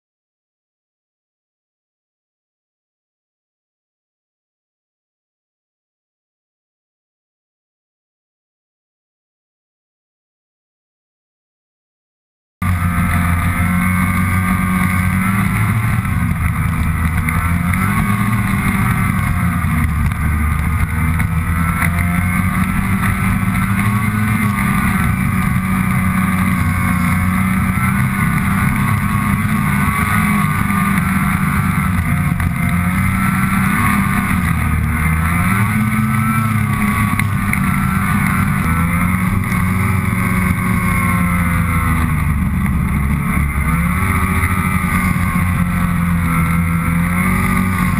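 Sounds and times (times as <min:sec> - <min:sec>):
snowmobile engine revving: 0:12.6 - 0:47.9.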